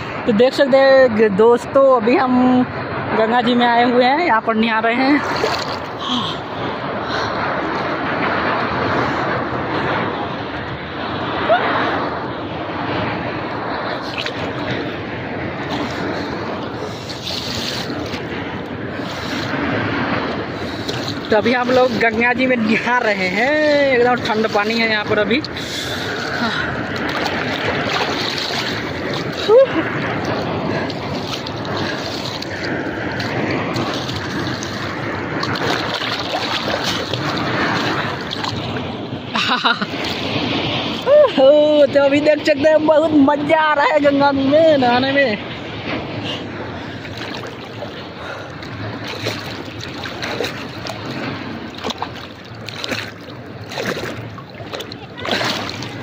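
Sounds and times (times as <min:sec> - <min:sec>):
river water splashing: 0:00.0 - 0:56.0
small splashes and drips: 0:30.3 - 0:38.8, 0:48.6 - 0:56.0.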